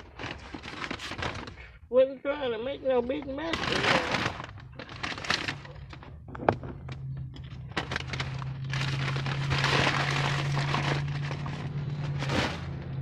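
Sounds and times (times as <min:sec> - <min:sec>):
paper bag crinkling: 0:00.0 - 0:01.8, 0:03.5 - 0:06.2, 0:07.4 - 0:13.0
low hum: 0:04.4 - 0:13.0.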